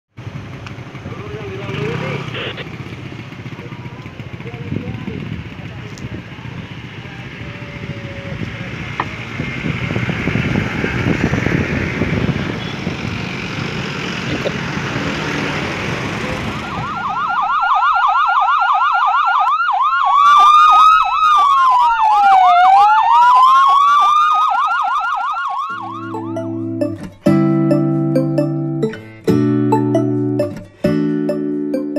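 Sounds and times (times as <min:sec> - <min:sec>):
vehicles passing: 0:00.2 - 0:18.0, 0:25.5 - 0:31.9
siren yelping: 0:02.3 - 0:02.7, 0:16.6 - 0:27.0
siren wailing: 0:16.6 - 0:26.9
music: 0:25.8 - 0:31.9.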